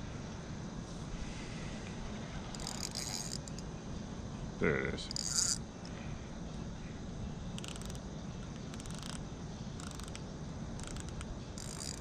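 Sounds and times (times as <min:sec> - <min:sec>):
low background rumble: 0:00.0 - 0:12.0
fishing reel clicking: 0:02.5 - 0:03.6, 0:05.1 - 0:05.6, 0:07.6 - 0:08.0, 0:08.6 - 0:09.2, 0:09.8 - 0:10.2, 0:10.8 - 0:12.0.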